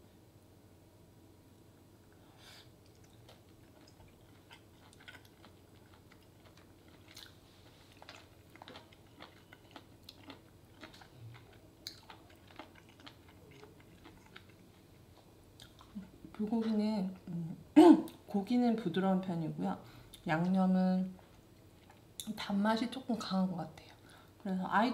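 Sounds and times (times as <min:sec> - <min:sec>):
wet chewing mouth clicks: 0:02.8 - 0:14.8.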